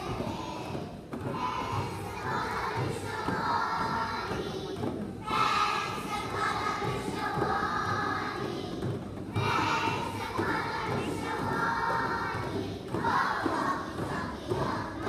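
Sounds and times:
children's choir singing: 0:00.0 - 0:15.0
frame drums thudding: 0:00.0 - 0:15.0.

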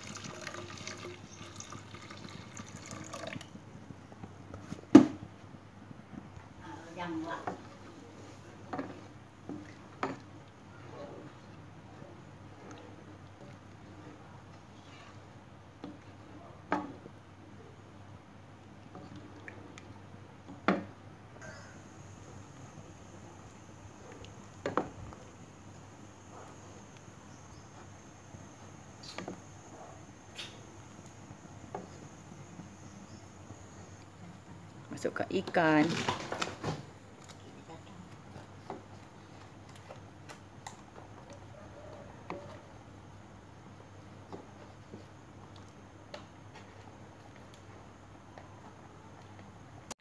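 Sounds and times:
liquid pouring and splashing: 0:00.0 - 0:03.6.

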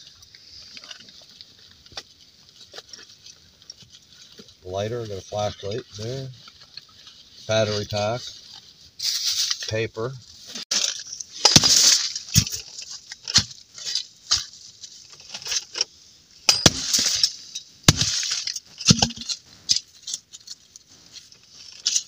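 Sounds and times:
firewood pieces knocking: 0:16.5 - 0:19.9.

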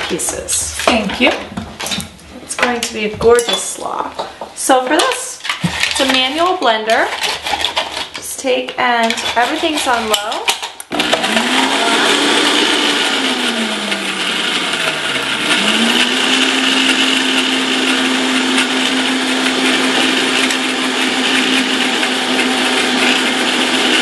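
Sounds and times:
blender motor blending liquid: 0:10.9 - 0:24.0.

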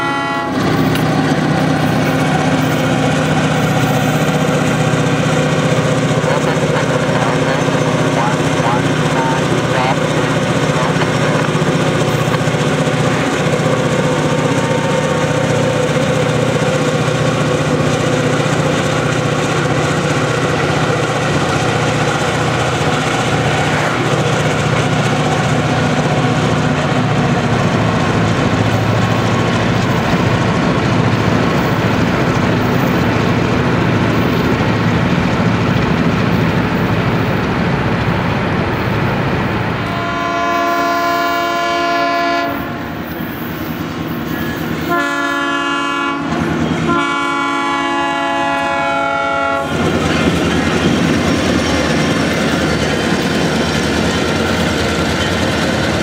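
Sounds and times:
train horn chord: 0:00.0 - 0:00.6, 0:39.9 - 0:42.9, 0:44.8 - 0:49.8
diesel locomotive engine drone: 0:00.0 - 0:56.0.

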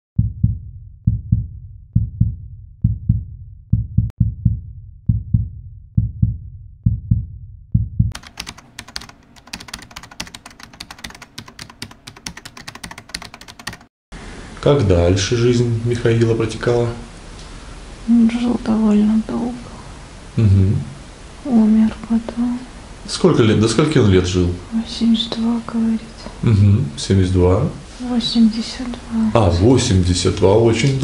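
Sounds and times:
heartbeat thumps: 0:00.2 - 0:08.2.

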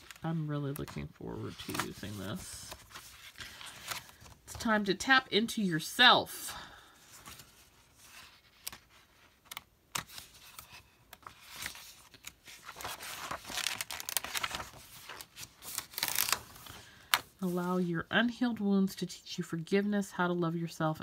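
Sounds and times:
paper pages rustling: 0:00.0 - 0:04.8, 0:07.1 - 0:17.8.

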